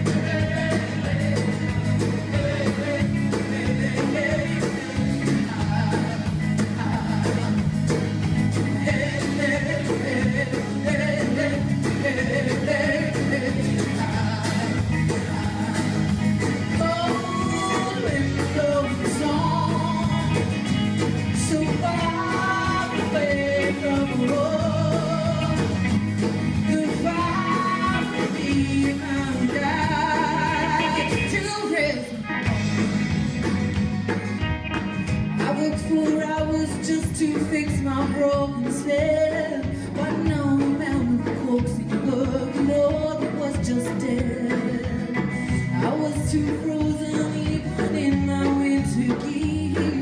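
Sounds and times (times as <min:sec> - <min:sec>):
frame hand drums: 0:00.0 - 0:31.8
folk-rock band with singing: 0:00.0 - 0:50.0.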